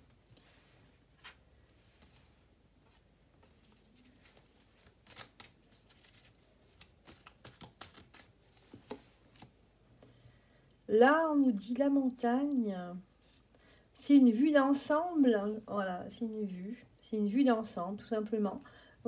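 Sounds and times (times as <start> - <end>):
cards shuffling: 2.9 - 9.5.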